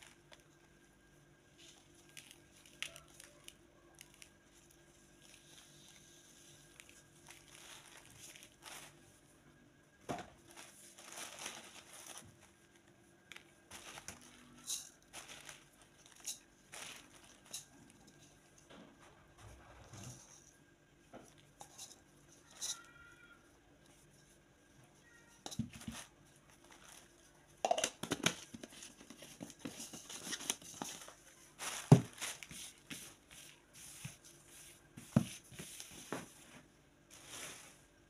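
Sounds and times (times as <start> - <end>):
dried sprigs rustling: 0.0 - 9.5, 10.4 - 18.7, 25.4 - 27.6, 28.8 - 38.0
plastic bag crinkling: 1.5 - 9.3, 10.4 - 18.5, 25.8 - 27.8, 28.6 - 33.6.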